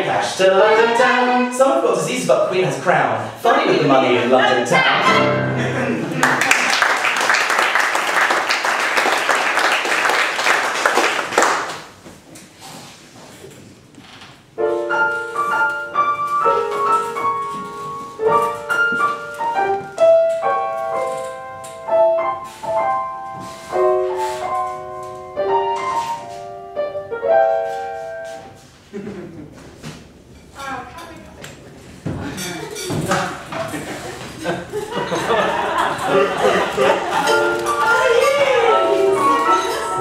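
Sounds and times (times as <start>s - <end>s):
slow piano notes and chords: 5.0s - 6.3s, 14.5s - 28.7s, 36.0s - 40.0s
audience applauding: 5.8s - 12.0s.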